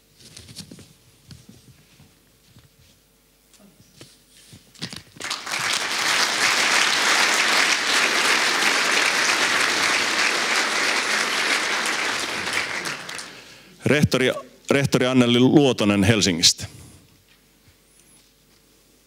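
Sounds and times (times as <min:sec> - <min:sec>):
audience applauding: 0:05.2 - 0:13.7.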